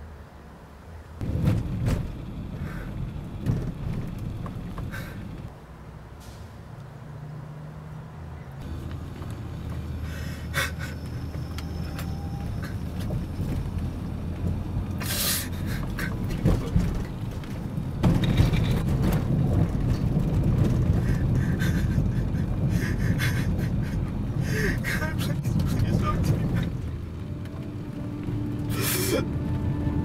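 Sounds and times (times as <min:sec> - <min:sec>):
car road noise rumble: 0:00.0 - 0:30.0
short hissing noises: 0:15.0 - 0:15.5.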